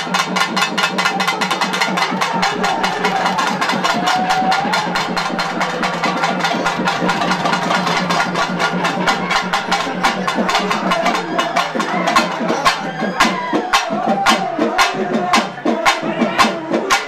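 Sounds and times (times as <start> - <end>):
fast even drumming: 0.0 - 17.0.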